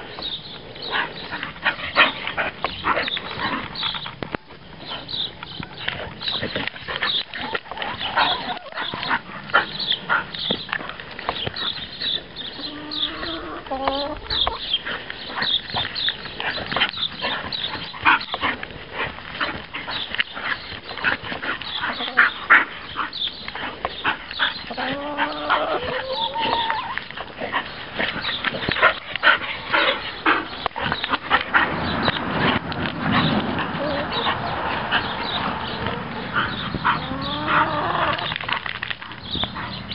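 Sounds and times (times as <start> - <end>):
dogs play-fighting vocalising: 0.3 - 39.9
dog whines: 24.8 - 27.0.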